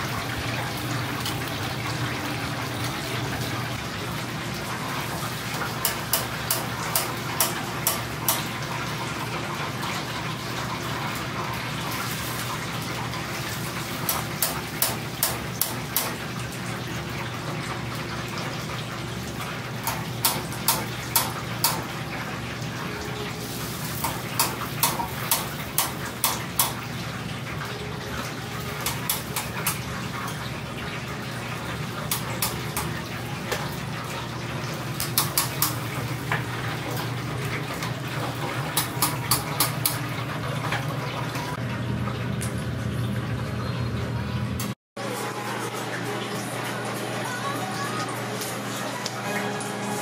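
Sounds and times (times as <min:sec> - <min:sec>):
oil sizzling in deep fryer: 0:00.0 - 0:50.0.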